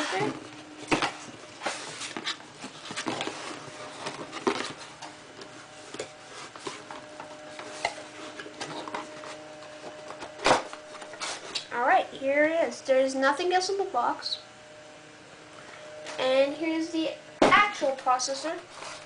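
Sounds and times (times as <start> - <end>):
cardboard box rustling and scraping: 0.0 - 5.0, 5.9 - 10.3.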